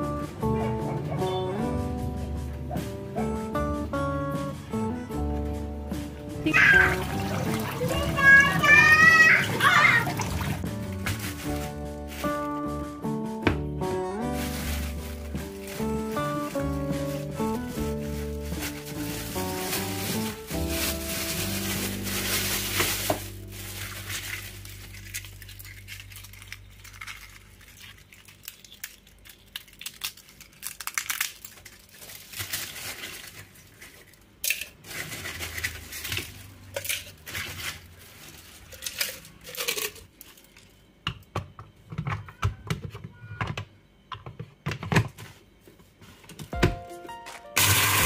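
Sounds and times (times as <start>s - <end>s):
plastic bag rustling: 6.4s - 13.0s, 14.0s - 40.8s, 47.1s - 48.0s
eggshell pieces clinking into glass jar: 24.1s - 32.1s, 38.7s - 40.4s.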